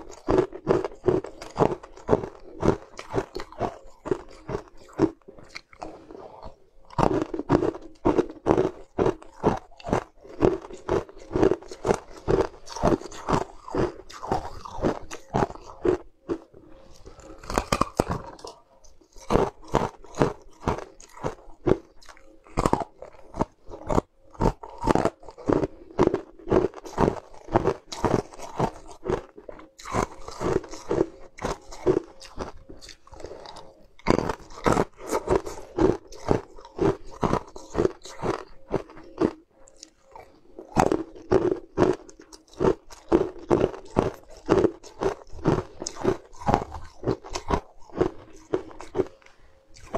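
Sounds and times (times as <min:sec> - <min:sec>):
ice crunched between teeth: 0:00.0 - 0:49.9.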